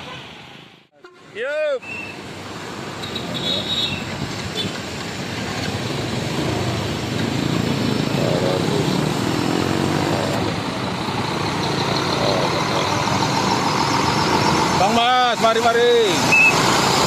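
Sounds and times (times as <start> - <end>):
traffic din: 0.0 - 17.0
bus diesel engine running: 4.1 - 17.0.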